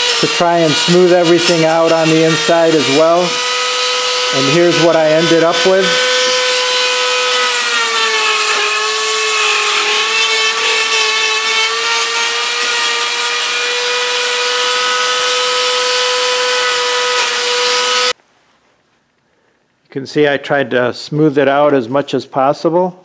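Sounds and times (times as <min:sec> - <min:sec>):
rotary tool whining: 0:00.0 - 0:18.2.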